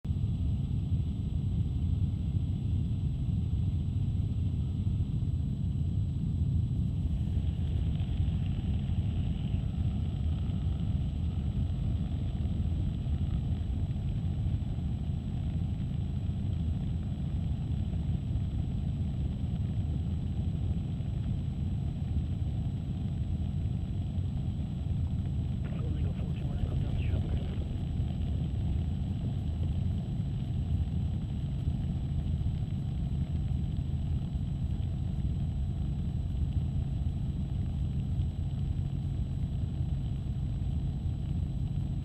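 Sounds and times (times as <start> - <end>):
helicopter cabin rumble: 25.5 - 29.1.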